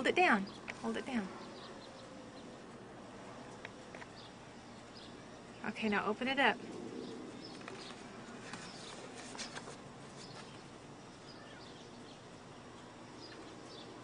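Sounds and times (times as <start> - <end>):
low steady hiss: 0.0 - 14.0
paper folder rustling: 7.6 - 10.6
short paper crackles: 7.6 - 10.6.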